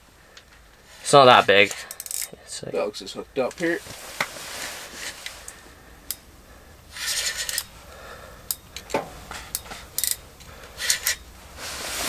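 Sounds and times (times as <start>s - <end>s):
fishing reel clicks: 1.8s - 2.3s, 9.5s - 10.2s
fishing reel rasp: 1.8s - 2.3s, 6.9s - 7.8s, 10.8s - 11.2s.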